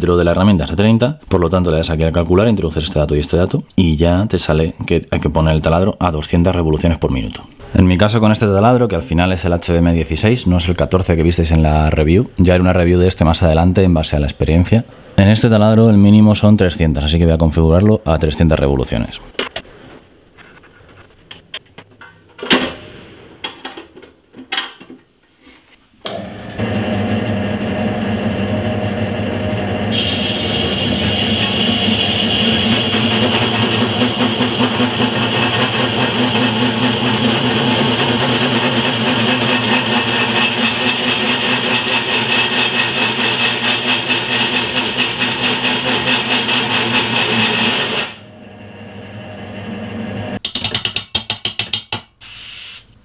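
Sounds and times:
hole saw cutting steel whine: 26.1s - 49.7s
drill press motor running: 26.1s - 50.4s.

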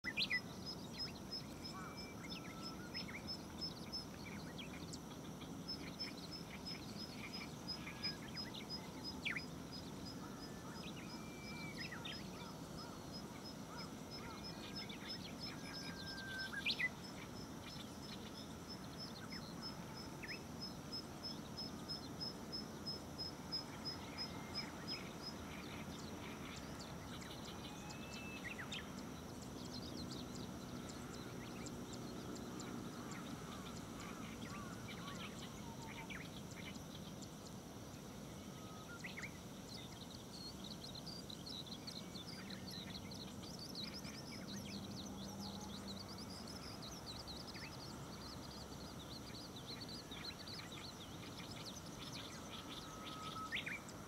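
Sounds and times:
birds chirping: 0.0s - 54.0s
steady low background noise: 0.0s - 54.0s.

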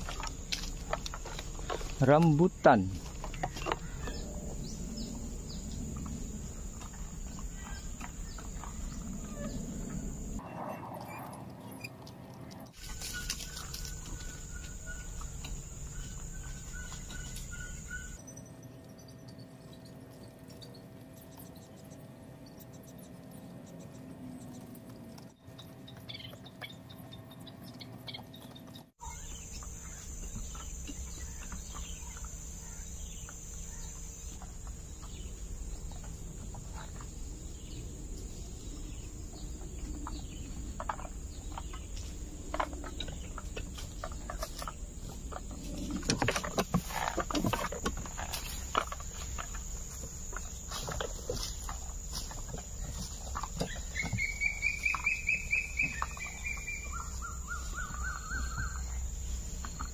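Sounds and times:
rustles and clicks in dry grass: 0.0s - 4.2s, 11.4s - 18.2s, 19.8s - 59.9s
high insect drone: 0.0s - 10.4s, 29.0s - 59.9s
bird chirps: 12.8s - 46.0s, 48.1s - 59.9s.

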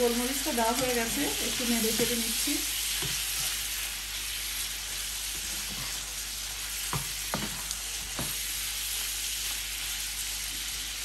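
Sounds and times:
chicken sizzling in a frying pan: 0.0s - 11.0s
spatula stirring and knocking pan: 2.9s - 3.7s, 5.3s - 6.2s, 6.8s - 8.5s.

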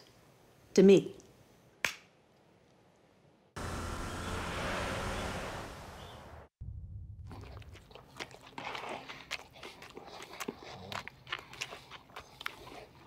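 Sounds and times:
chewing and crunching: 7.2s - 13.0s.

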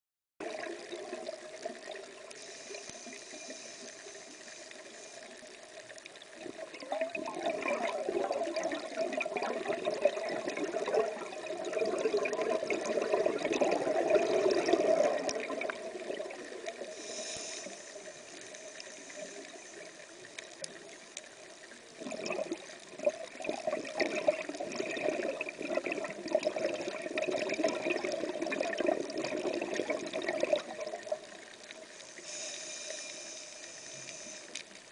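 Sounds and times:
exhaled bubbles rushing: 0.4s - 2.3s, 6.3s - 16.9s, 21.9s - 31.6s
regulator inhale hiss: 2.2s - 6.0s, 16.7s - 21.3s, 31.7s - 34.9s.

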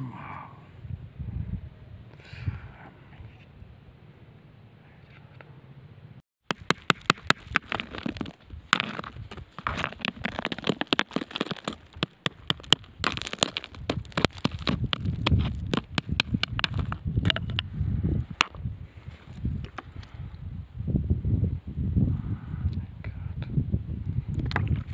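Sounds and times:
stones and gravel clicking: 6.4s - 17.7s, 24.3s - 24.9s.

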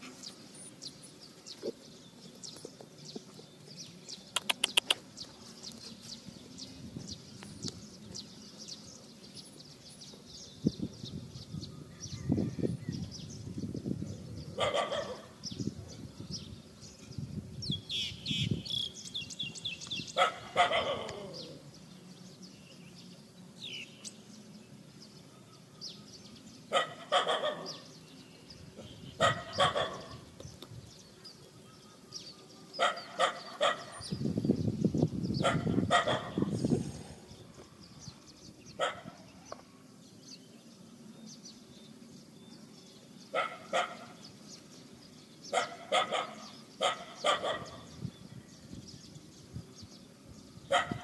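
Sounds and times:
dog barking: 14.6s - 15.3s, 20.2s - 21.2s, 26.7s - 27.8s, 29.2s - 30.2s, 32.8s - 34.0s, 35.4s - 36.4s, 38.8s - 39.2s, 43.4s - 44.1s, 45.5s - 47.9s, 50.7s - 51.0s.

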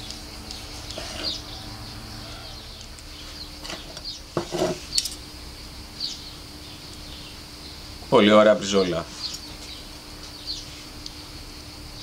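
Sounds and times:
birds chirping faintly: 0.0s - 12.0s.

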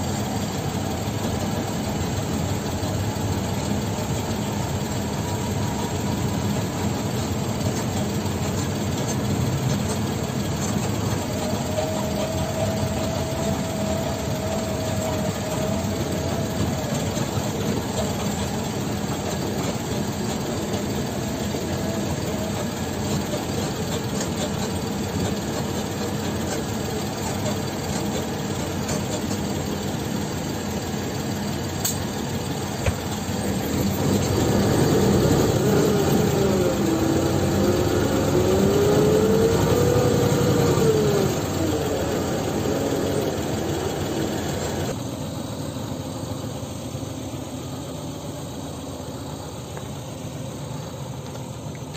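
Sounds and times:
diesel engine running under load: 0.0s - 51.9s
faint steady whine: 0.0s - 51.9s
rattles in truck cab: 0.1s - 30.2s.

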